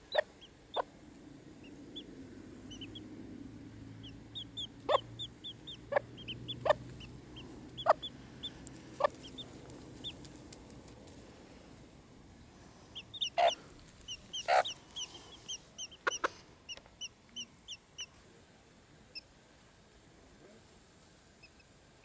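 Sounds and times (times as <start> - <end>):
chicks peeping: 0.0 - 0.9, 1.5 - 3.1, 4.0 - 10.6, 12.9 - 18.2
sharp chick calls: 0.0 - 0.9, 1.6 - 3.1, 4.0 - 10.3, 12.9 - 18.2.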